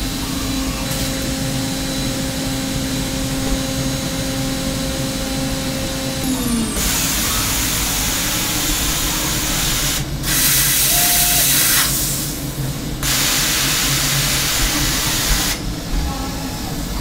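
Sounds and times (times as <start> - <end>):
machine humming: 0.0 - 17.0
compressed air hissing: 6.6 - 15.7.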